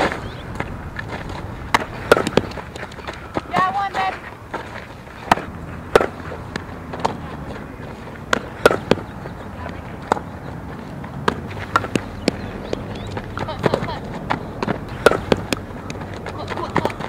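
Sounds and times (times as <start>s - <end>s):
outdoor background noise: 0.0s - 17.0s
softball being hit: 1.7s - 3.8s, 5.2s - 10.3s, 11.2s - 17.0s.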